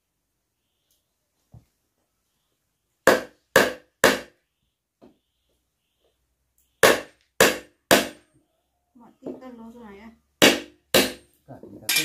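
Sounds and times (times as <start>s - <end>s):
hammer driving nails into wood: 6.8s - 8.2s.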